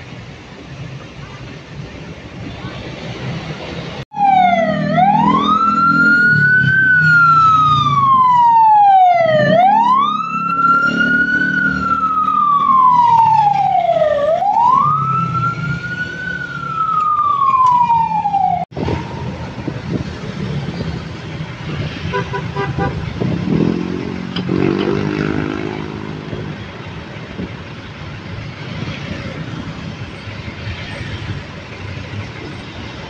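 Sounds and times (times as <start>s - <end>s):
ambulance siren wailing: 4.1s - 19.8s.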